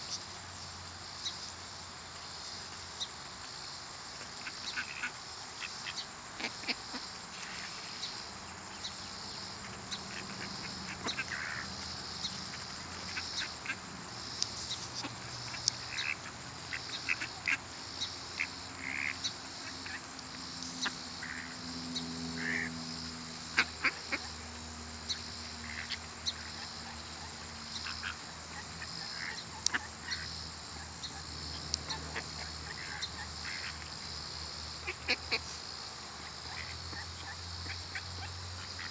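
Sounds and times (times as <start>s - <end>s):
steady high hiss: 0.0s - 38.9s
ducks quacking: 4.2s - 7.8s, 9.6s - 13.9s, 14.6s - 20.1s, 22.4s - 22.8s, 23.5s - 24.4s, 25.6s - 33.9s, 34.8s - 35.6s, 36.2s - 38.9s
geese honking: 9.6s - 13.9s, 14.7s - 20.1s, 22.4s - 22.8s, 25.6s - 33.9s, 34.8s - 35.6s.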